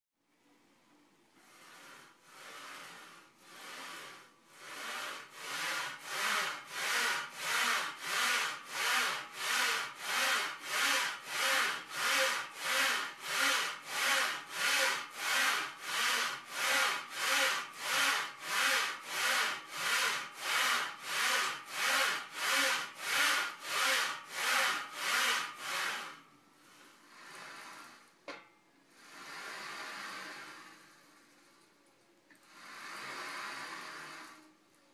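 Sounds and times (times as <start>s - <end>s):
rasping strokes: 1.4s - 28.2s.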